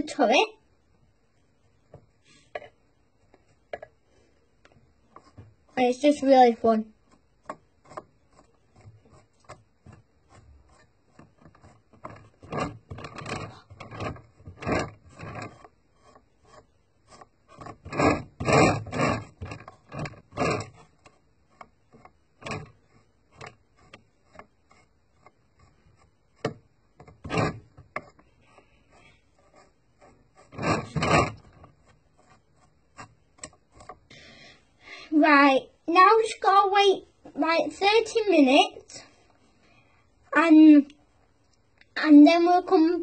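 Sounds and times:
stiff paintbrush scrubbing plastic: 5.0 - 34.2.

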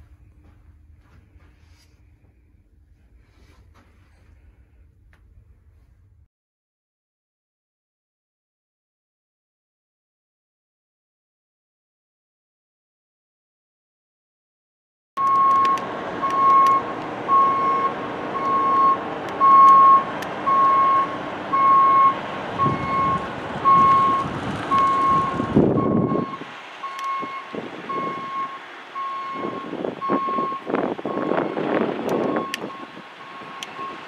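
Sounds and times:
vehicle engine rumble: 0.0 - 6.3, 15.2 - 34.0
reversing alarm beeping: 15.2 - 34.0.

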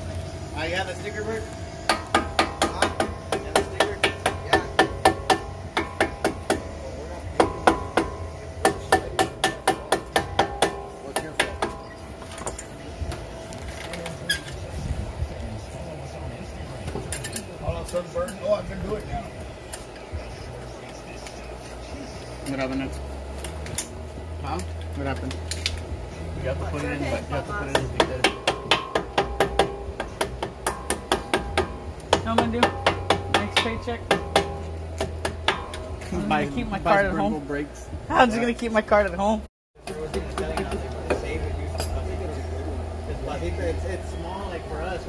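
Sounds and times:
sharp metallic knocks with ringing: 1.8 - 12.7, 27.6 - 36.1.

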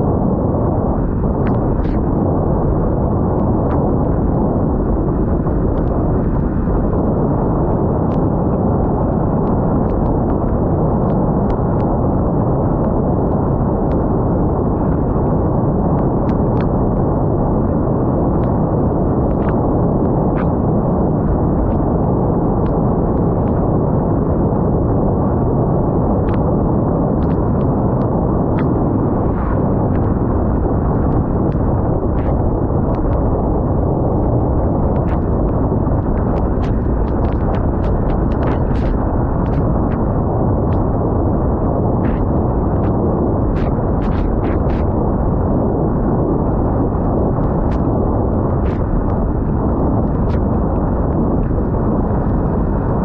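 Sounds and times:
wind buffeting microphone: 0.0 - 53.0
raindrops ticking on camera: 34.2 - 40.1.

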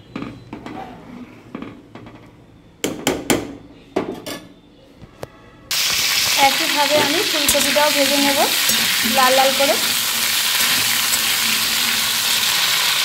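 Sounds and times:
metal spoon clinking in pot: 7.0 - 12.1.

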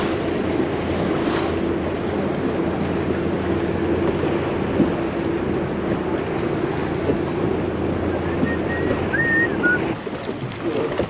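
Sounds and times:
boat motor running: 0.0 - 11.0
water noise: 0.0 - 11.0
wind on microphone: 0.0 - 11.0
thin high whistle: 8.2 - 9.9.

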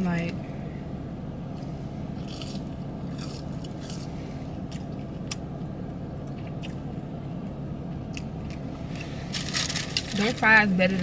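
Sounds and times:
steady low hum: 0.0 - 11.0
person chewing crispy food: 1.5 - 5.5.

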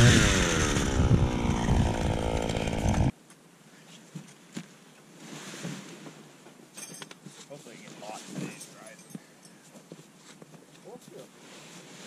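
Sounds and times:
ice auger engine running: 0.0 - 3.1
faint wind: 0.0 - 12.0.

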